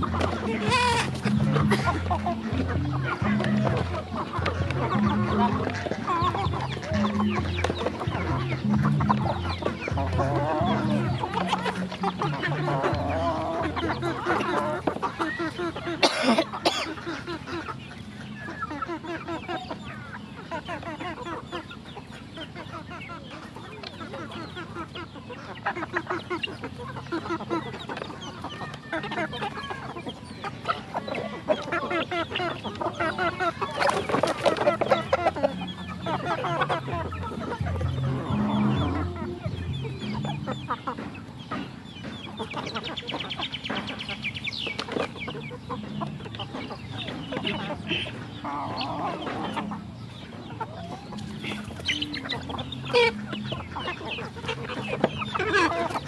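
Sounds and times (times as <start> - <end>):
chickens clucking: 0.0 - 56.0.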